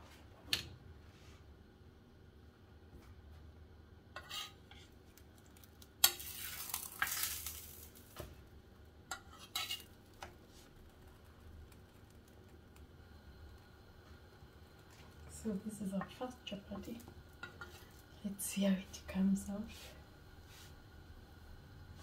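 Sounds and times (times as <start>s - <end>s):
metal spoon scraping and tapping: 4.2s - 4.8s, 9.1s - 9.9s, 17.4s - 17.9s
oil sizzling: 4.2s - 18.6s.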